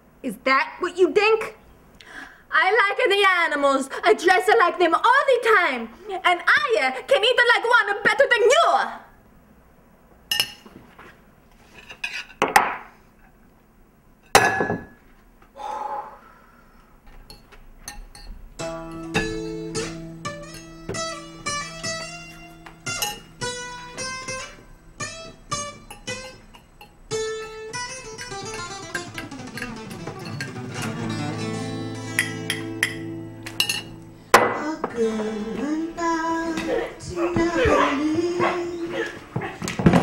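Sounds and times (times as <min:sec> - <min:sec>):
acoustic guitar picking: 0:18.0 - 0:39.4.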